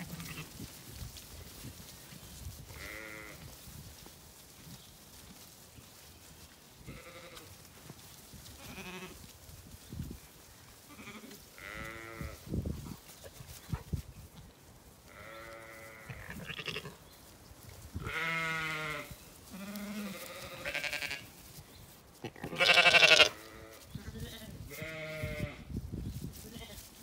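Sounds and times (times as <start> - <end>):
sheep bleating: 2.7 - 3.4, 6.9 - 7.5, 10.9 - 12.4, 15.1 - 17.0, 18.1 - 21.3, 22.3 - 25.6.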